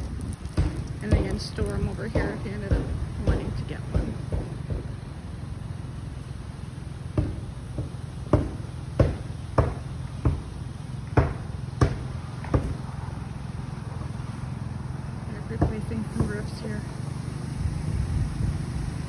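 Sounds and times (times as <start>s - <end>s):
footsteps on paved path: 0.0s - 4.9s
low steady rumble: 0.0s - 19.0s.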